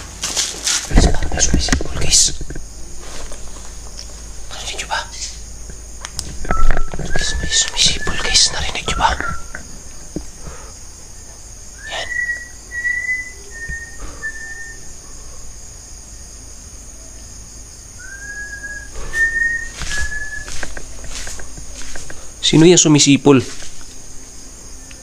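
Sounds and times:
whistled notes: 6.5s - 9.6s, 11.8s - 15.0s, 18.0s - 20.7s.

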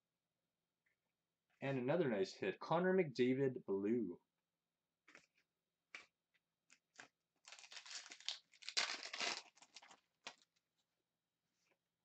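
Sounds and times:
card pack wrapper tearing and crinkling: 6.7s - 10.5s.

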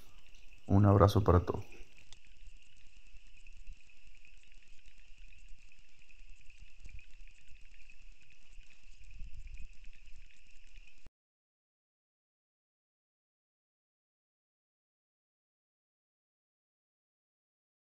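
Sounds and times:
insect chorus chirring: 0.0s - 11.1s.

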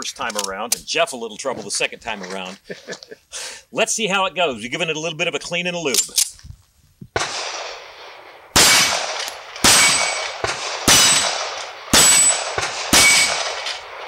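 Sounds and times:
pistol shots: 7.2s - 14.0s
struck steel plate ringing: 9.7s - 10.3s, 10.9s - 11.4s, 12.0s - 13.4s.

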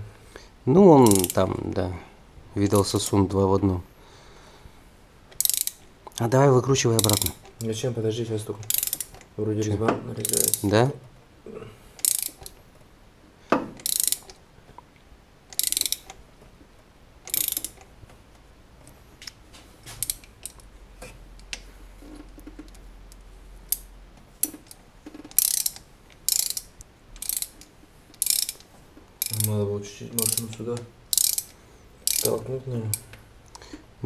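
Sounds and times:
ratchet wrench clicking: 1.0s - 1.4s, 5.4s - 5.8s, 7.0s - 7.6s, 8.7s - 9.2s, 10.2s - 10.7s, 12.0s - 12.5s, 13.8s - 14.3s, 15.5s - 16.2s, 17.3s - 17.8s, 20.0s - 20.6s, 23.7s - 29.6s, 30.2s - 33.1s.

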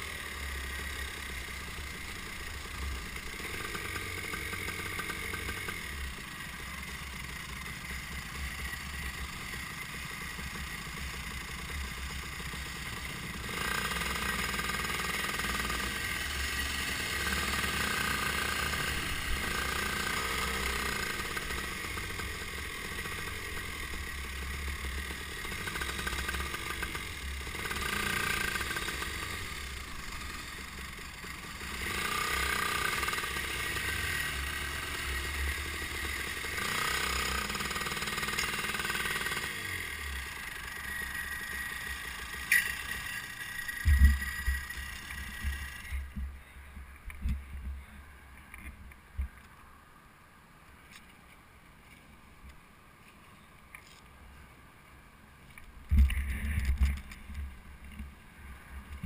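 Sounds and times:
kart engine on board: 0.0s - 46.4s
other kart engines: 0.0s - 49.9s, 55.1s - 59.0s.

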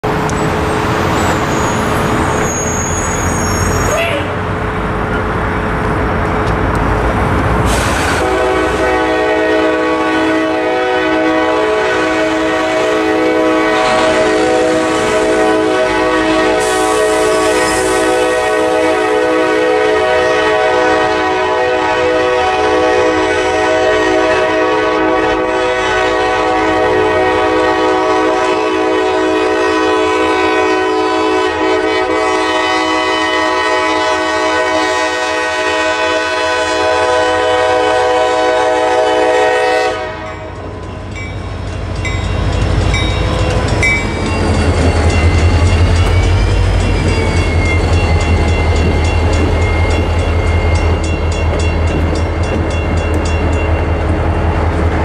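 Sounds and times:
diesel locomotive rumbling past: 0.0s - 55.0s
locomotive air horn: 7.7s - 40.5s
crossing bell ringing: 40.1s - 54.8s.

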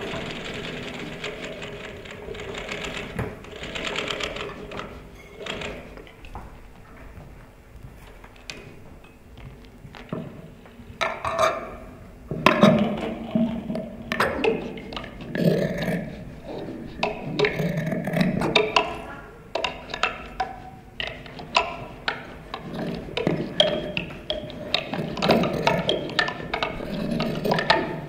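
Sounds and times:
objects scraped plucked and tapped: 16.5s - 28.0s.

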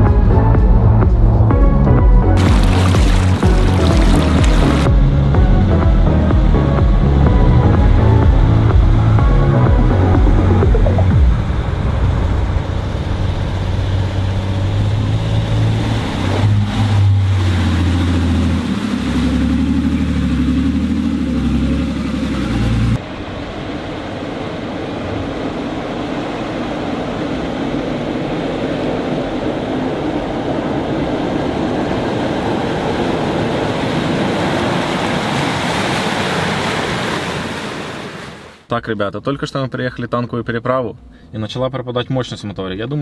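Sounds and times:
water rushing and splashing: 2.4s - 5.2s, 6.1s - 38.7s
low tones shifting in pitch: 3.2s - 26.0s.

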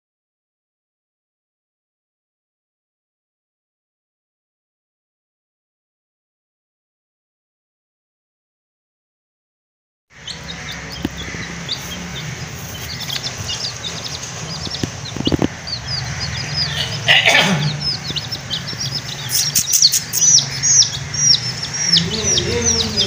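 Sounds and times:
chicks peeping: 10.2s - 23.0s
handling noise: 10.4s - 16.0s.

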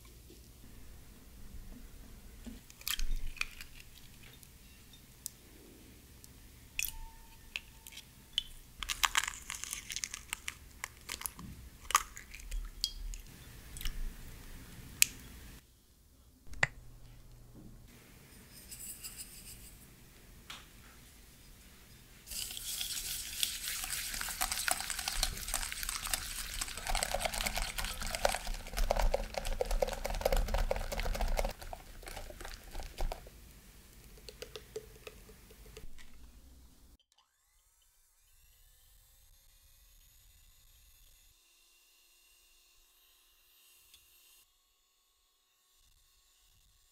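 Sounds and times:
whisk scraping glass bowl: 18.3s - 19.9s, 22.3s - 33.3s.

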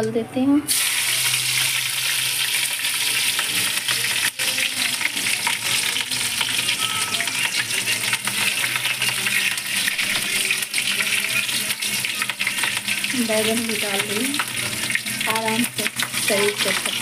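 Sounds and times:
spices sizzling in hot oil: 0.7s - 17.0s.

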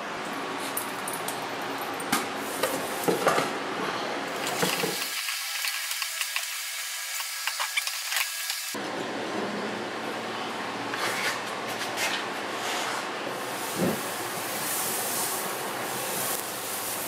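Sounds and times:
hot steel sizzling in water: 4.4s - 8.8s, 13.4s - 17.0s.

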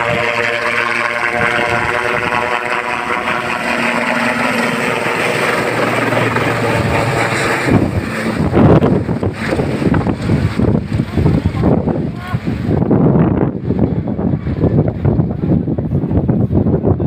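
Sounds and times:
helicopter drone overhead: 0.0s - 17.0s
wind buffeting microphone: 0.0s - 17.0s.

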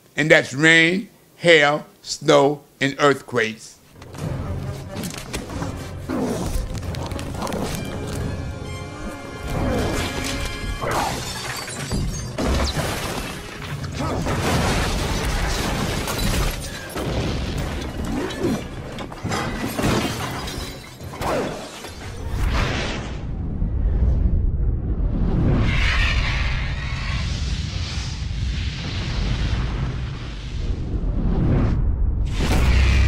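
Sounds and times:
cinematic music: 4.0s - 15.6s
crashing shattering hits: 9.8s - 21.2s.

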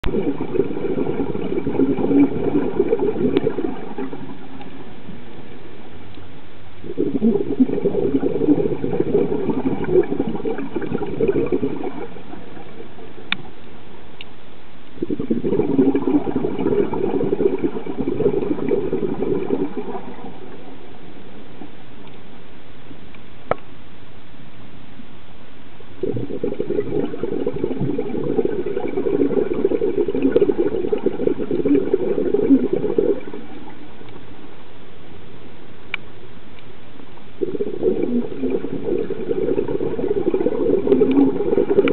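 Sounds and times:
regulator bubbles gurgling underwater: 0.0s - 6.1s, 6.8s - 13.7s, 14.9s - 21.8s, 26.0s - 34.5s, 37.2s - 41.9s
faint sharp clicks: 13.3s - 13.5s, 14.2s - 15.0s, 22.0s - 22.3s, 23.1s - 23.7s, 35.9s - 36.7s.

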